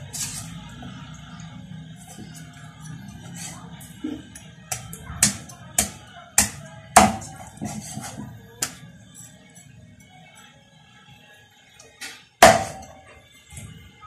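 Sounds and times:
cleaver chopping chicken: 4.7 - 8.8.

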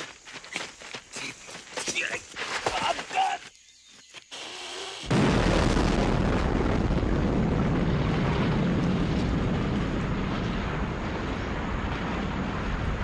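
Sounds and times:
debris rumble: 5.1 - 13.0
large explosion: 5.1 - 13.0.

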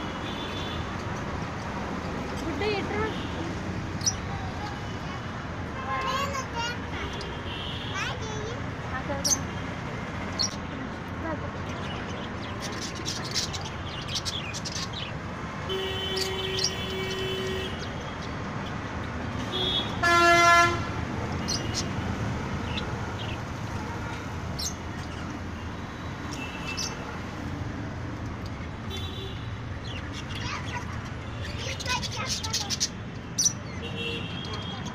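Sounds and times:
traffic noise: 0.0 - 34.9
budgerigars chirping: 11.8 - 15.2
vehicle horn honking: 19.5 - 20.9.

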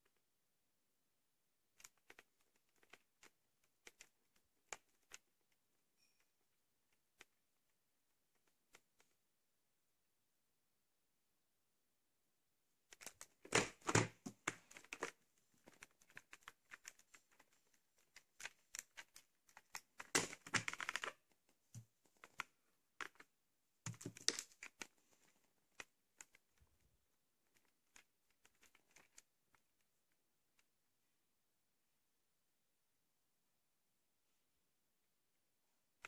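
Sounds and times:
bubble wrap crackling: 13.0 - 22.4.

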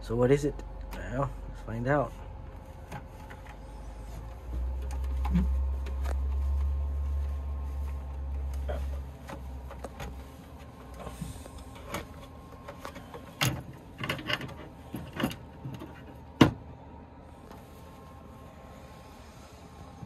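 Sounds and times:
fabric rustling: 2.5 - 11.5.

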